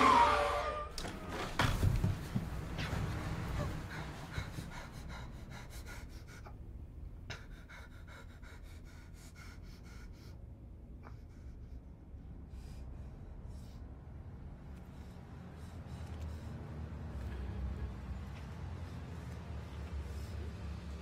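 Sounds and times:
boy panting: 2.9 - 13.9.

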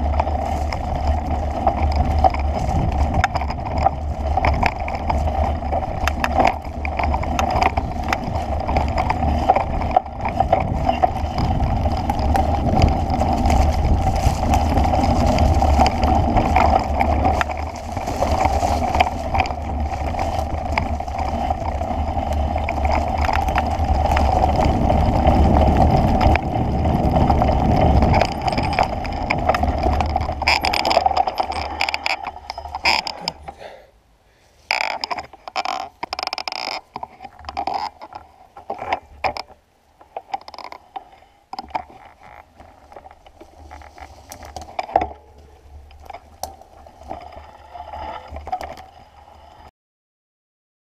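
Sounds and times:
wind buffeting microphone: 0.0 - 33.5.

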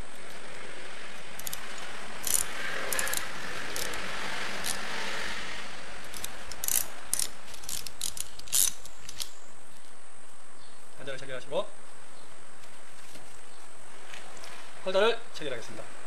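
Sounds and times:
crimping tool clicking: 1.4 - 4.0, 6.0 - 9.4.

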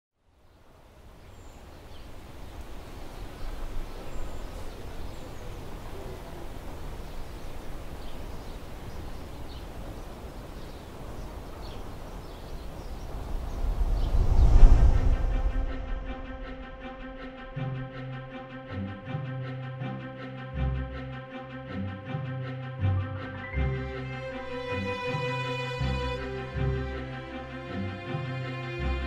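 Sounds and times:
faint birdsong chirps: 0.2 - 16.1, 22.9 - 28.8
low wind rumble: 0.4 - 19.4.

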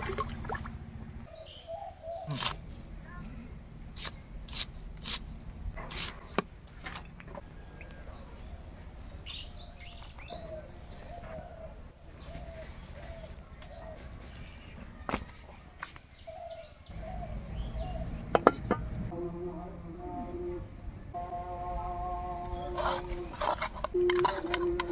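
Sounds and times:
birds chirping: 0.8 - 2.6, 7.4 - 18.4
knife cutting shallots: 4.0 - 5.3, 5.9 - 6.4.

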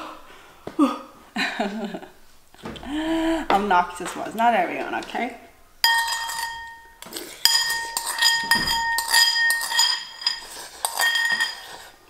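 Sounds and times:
metal spoon scraping ceramic bowl: 5.8 - 12.0.

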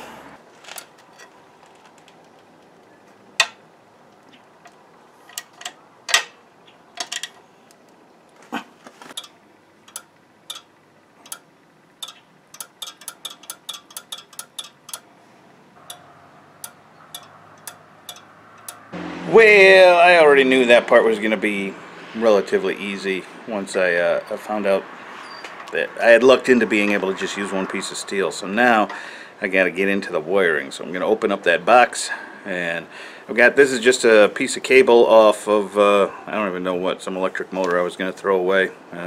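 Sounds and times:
metal clicks of hand tools: 3.4 - 6.4, 9.0 - 15.1, 15.8 - 18.9.

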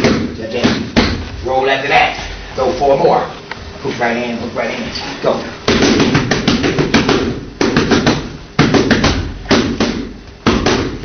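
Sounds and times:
boxing gloves smacking mitts: 0.0 - 1.3, 5.7 - 11.0.

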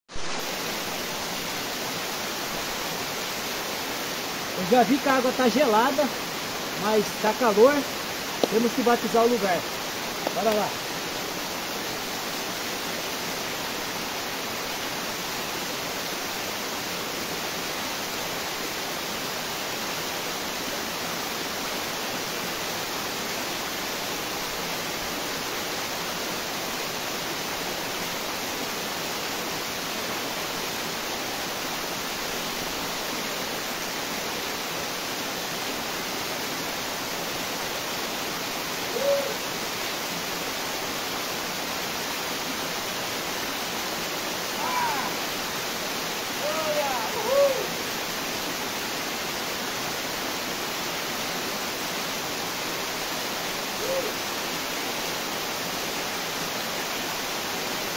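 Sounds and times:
short pitched call: 38.9 - 39.4, 46.4 - 47.8.

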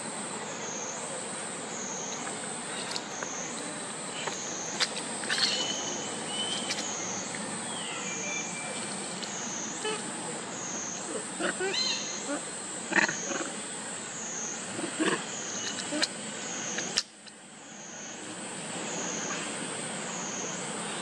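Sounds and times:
background hiss: 0.0 - 21.0
high-pitched insect drone: 0.0 - 21.0
brief whistled calls: 5.3 - 6.9.

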